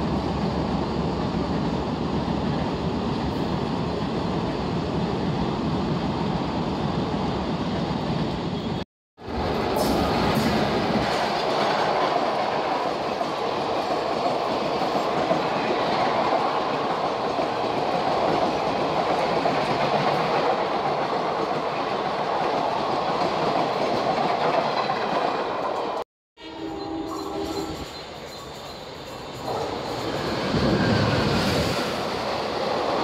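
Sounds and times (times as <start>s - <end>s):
train wheels on rails: 0.0s - 26.0s, 27.1s - 33.0s.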